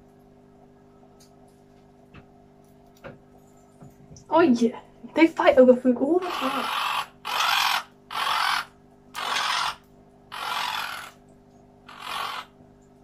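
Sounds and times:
parrots squawking: 0:06.2 - 0:11.2, 0:11.9 - 0:12.6.

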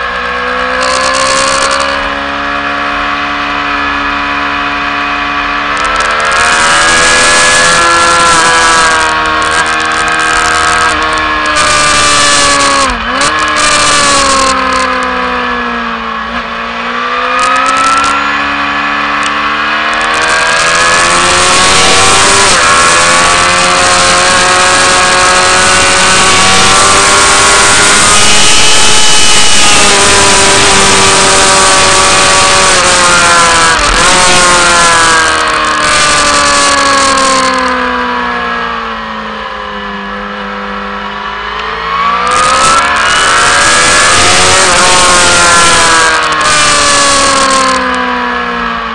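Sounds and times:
motorcycle engine revving: 0:00.0 - 0:48.9
wind noise on microphone: 0:19.2 - 0:37.8.

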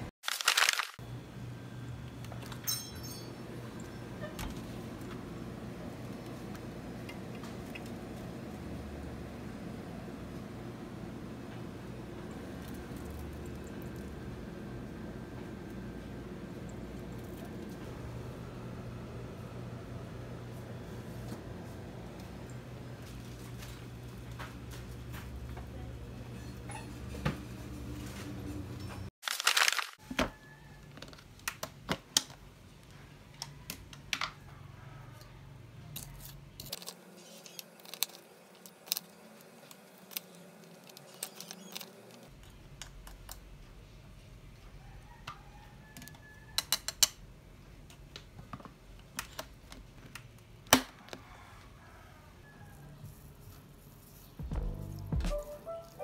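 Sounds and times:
frozen berries clattering: 0:00.2 - 0:01.0, 0:29.2 - 0:30.0
low hum: 0:54.4 - 0:56.0.

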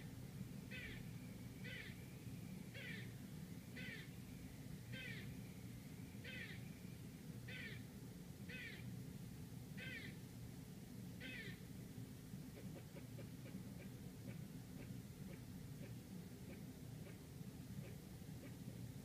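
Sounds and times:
steady low hum: 0:00.0 - 0:19.0
squirrel barking: 0:00.7 - 0:02.0, 0:02.7 - 0:03.1, 0:03.7 - 0:04.1, 0:04.9 - 0:05.3, 0:06.2 - 0:06.7, 0:07.5 - 0:07.8, 0:08.5 - 0:08.9, 0:09.8 - 0:10.2, 0:11.2 - 0:11.6, 0:12.6 - 0:18.7.

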